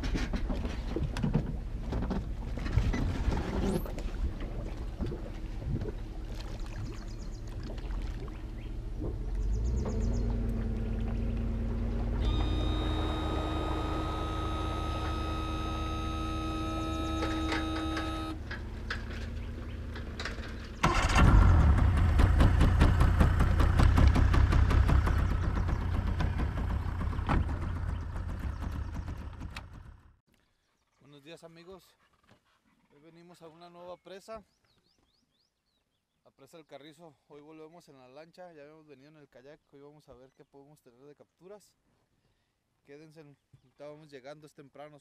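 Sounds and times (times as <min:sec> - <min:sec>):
outboard motor running: 0:00.0 - 0:30.2
steady whining tones: 0:09.6 - 0:20.9.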